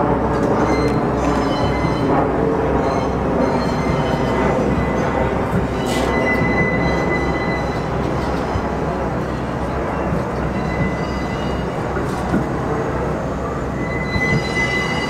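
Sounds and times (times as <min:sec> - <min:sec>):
train wheels rumbling on rails: 0:00.0 - 0:15.0
high wheel squeal: 0:02.8 - 0:11.9, 0:13.3 - 0:15.0.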